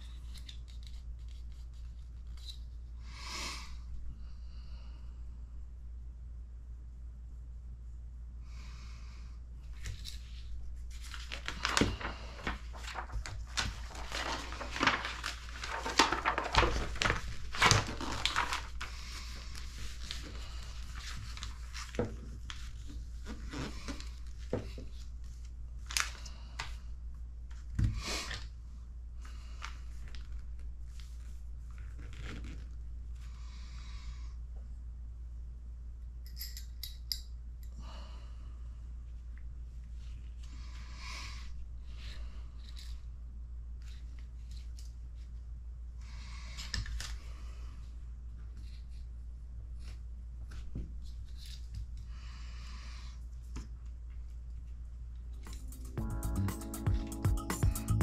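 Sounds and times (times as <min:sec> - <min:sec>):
steady low hum: 0:00.0 - 0:23.4
paper and plastic rustling: 0:09.7 - 0:26.8
small parts clicking and tapping: 0:36.3 - 0:37.8.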